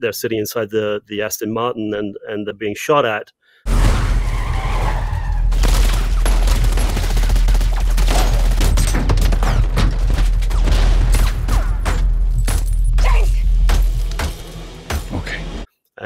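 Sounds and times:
tyres skidding: 3.7s - 5.6s
automatic gunfire: 5.6s - 11.9s.

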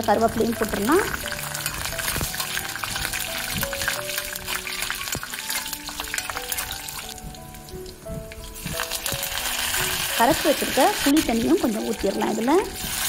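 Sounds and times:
hot oil sizzling: 0.0s - 13.0s
soft background music: 0.0s - 13.0s
spatula stirring: 1.1s - 13.0s.

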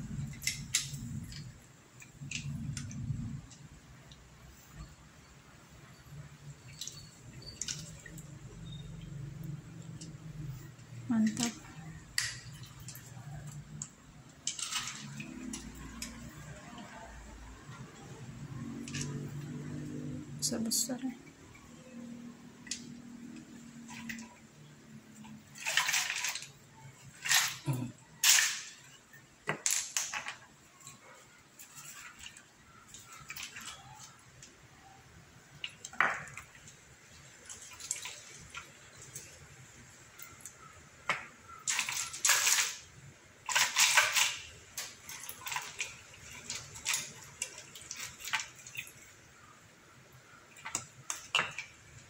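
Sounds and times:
wet shells clattering together: 25.2s - 30.6s, 41.6s - 49.2s.

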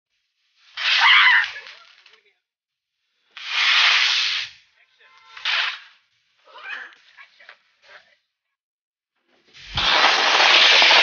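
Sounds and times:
firecracker hissing: 0.1s - 2.2s, 2.9s - 6.4s, 9.4s - 11.0s.

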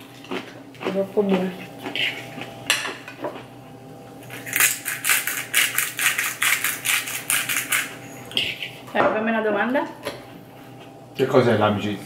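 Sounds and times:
spice grinder crunching: 4.2s - 8.8s.

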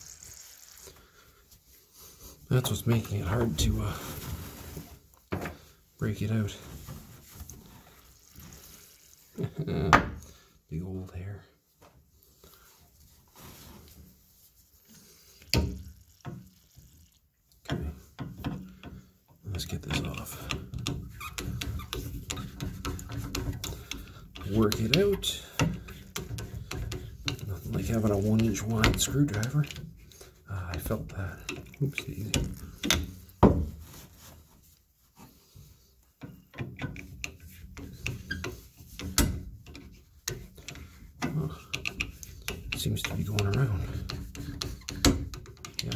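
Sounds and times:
chisel clicking and scraping metal: 19.9s - 33.2s, 36.2s - 45.9s.

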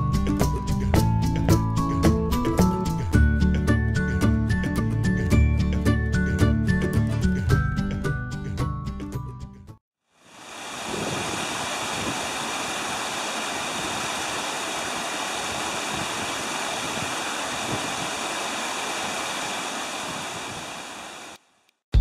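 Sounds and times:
creek rushing over boulders: 10.2s - 21.4s.

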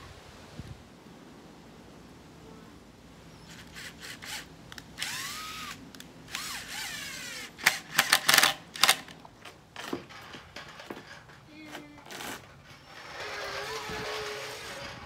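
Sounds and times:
cordless drill driving screws: 3.5s - 9.2s, 11.7s - 15.0s.

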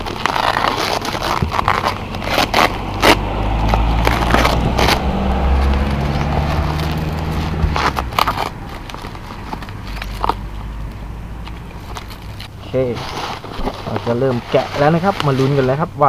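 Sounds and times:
bubble wrap crinkling: 0.0s - 16.0s
low engine hum: 1.2s - 12.8s.

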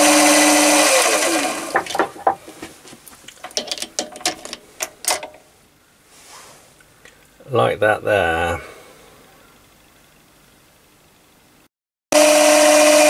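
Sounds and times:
lathe motor spinning down: 0.0s - 1.7s, 12.2s - 13.0s.

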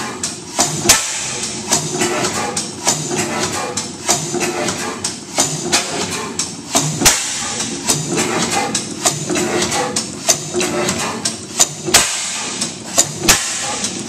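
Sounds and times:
gas engine knocking and clicking: 0.0s - 14.0s
engine loud sharp bang: 0.6s - 1.5s, 6.8s - 8.1s, 11.6s - 13.8s.

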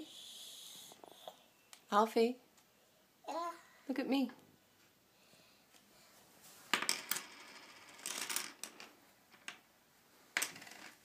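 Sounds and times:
plastic toy pieces clattering on floor: 6.7s - 9.6s.

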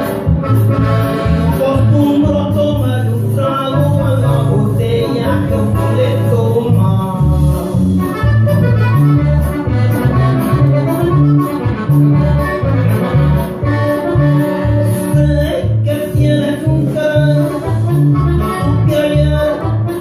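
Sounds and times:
regional music with accordion: 0.0s - 20.0s
steady bass beat: 0.0s - 20.0s.

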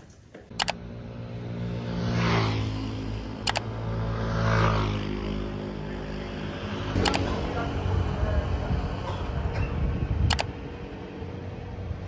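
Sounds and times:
road noise: 0.0s - 12.0s
sharp click: 0.5s - 0.8s, 3.4s - 3.7s, 7.0s - 7.3s, 10.3s - 10.5s
vehicle engine running: 0.5s - 12.0s.

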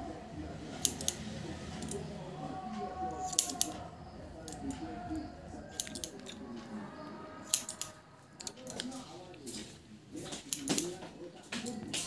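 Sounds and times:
scissors snipping hair: 0.8s - 1.2s, 1.8s - 2.0s, 3.1s - 3.8s, 5.7s - 6.4s, 7.4s - 9.0s, 10.3s - 12.0s.

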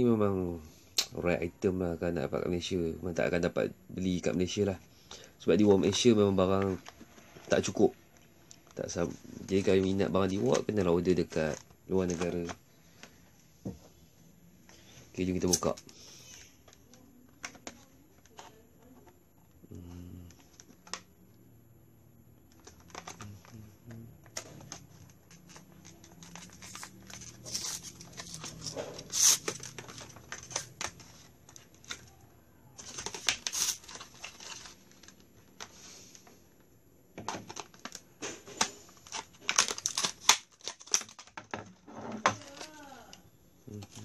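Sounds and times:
plastic packaging crackling: 5.2s - 13.2s, 22.5s - 36.2s, 37.2s - 44.0s
scissors cutting plastic: 24.3s - 32.0s, 32.8s - 35.2s, 38.6s - 41.4s.

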